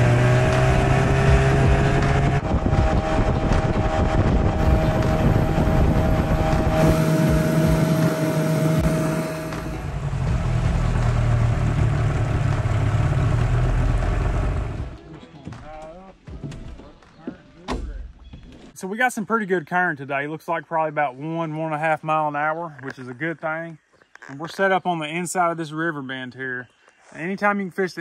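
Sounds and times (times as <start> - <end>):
outboard motor running: 2.4 - 15.0.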